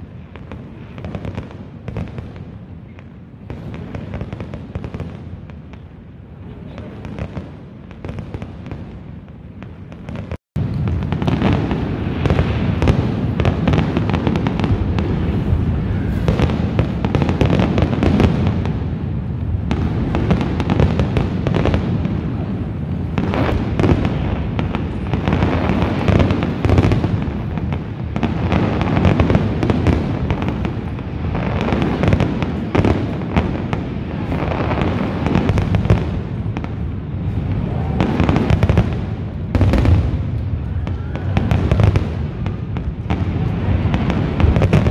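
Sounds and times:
fireworks bursting: 0:00.0 - 0:44.9.

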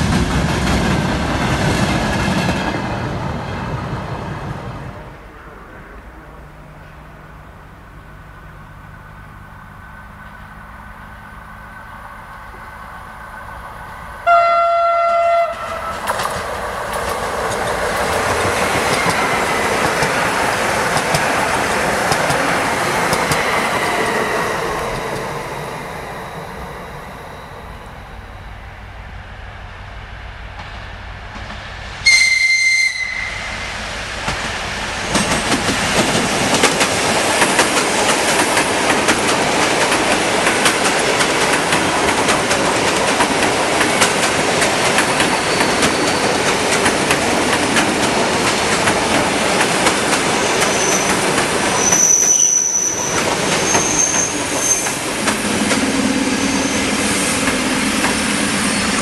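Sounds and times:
high train horn blast: 0:14.2 - 0:16.3, 0:32.0 - 0:33.7
train wheels clattering over rail joints: 0:15.6 - 0:25.9, 0:34.2 - 0:59.0
wheel squeal: 0:45.0 - 0:46.6, 0:50.3 - 0:59.0.

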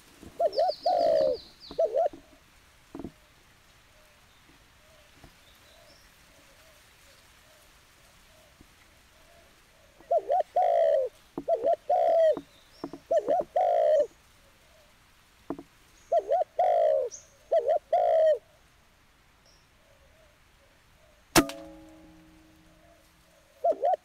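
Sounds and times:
dove cooing: 0:00.0 - 0:02.4, 0:09.2 - 0:14.9, 0:16.1 - 0:18.6, 0:22.6 - 0:24.0
air rifle shot with metallic ring: 0:21.4 - 0:23.0.

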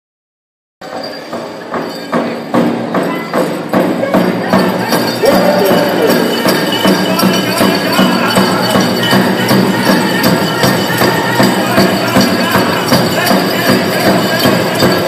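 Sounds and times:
large drum beating: 0:02.5 - 0:15.0
high singing voice: 0:04.0 - 0:15.0.

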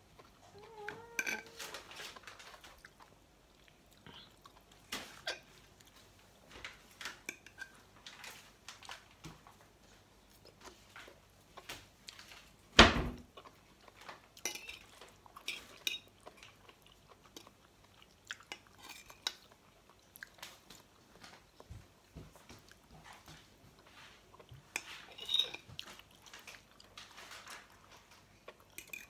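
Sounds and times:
person chewing: 0:02.2 - 0:06.2, 0:13.4 - 0:21.7.

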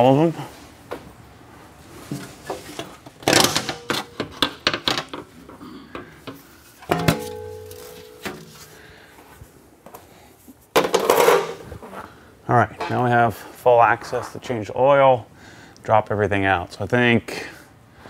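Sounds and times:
ringing metal clank: 0:06.9 - 0:08.6.

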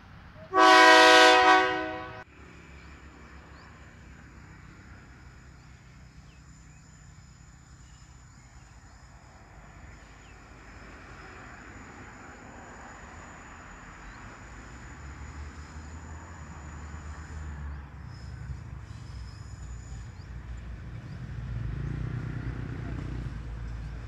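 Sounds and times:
railcar horn blast: 0:00.5 - 0:02.2.

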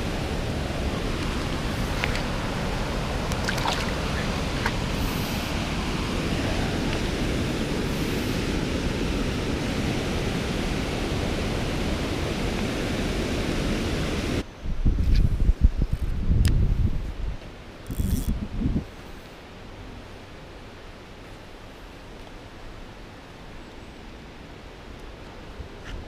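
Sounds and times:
creek water rushing: 0:00.0 - 0:14.4
light splashes and drips: 0:01.2 - 0:02.4, 0:03.2 - 0:04.8.

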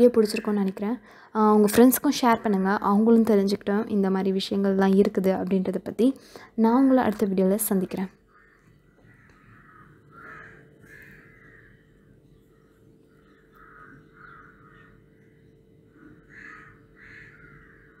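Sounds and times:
faint steady hum: 0:00.0 - 0:18.0
crows cawing: 0:08.3 - 0:18.0.

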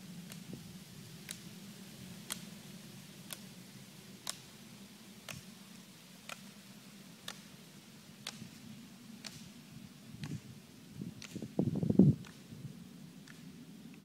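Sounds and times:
low steady hum: 0:00.0 - 0:14.0
steady ticking: 0:02.2 - 0:02.5, 0:08.2 - 0:08.4.

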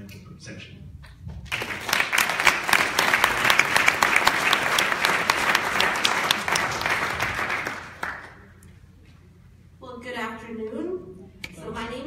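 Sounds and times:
small audience applauding: 0:01.5 - 0:08.6.

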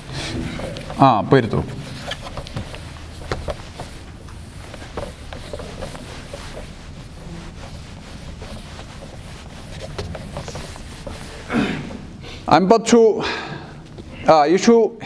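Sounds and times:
eraser rubbing on whiteboard: 0:00.0 - 0:11.5
steady low hum: 0:00.0 - 0:15.0.

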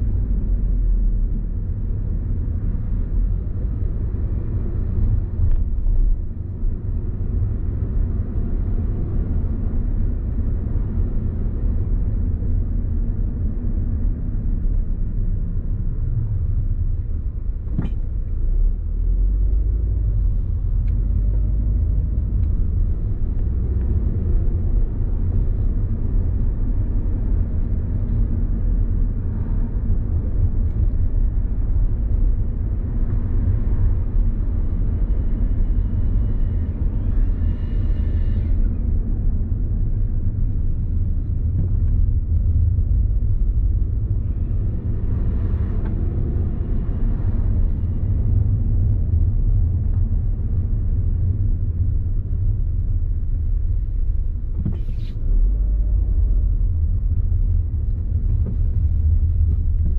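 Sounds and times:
car road and engine rumble: 0:00.0 - 0:59.9
faint high squeal: 0:36.2 - 0:38.8.

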